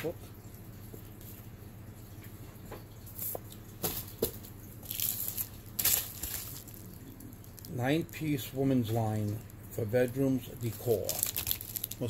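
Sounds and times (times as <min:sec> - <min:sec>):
packaging rustling: 0:03.8 - 0:07.8, 0:09.5 - 0:12.0.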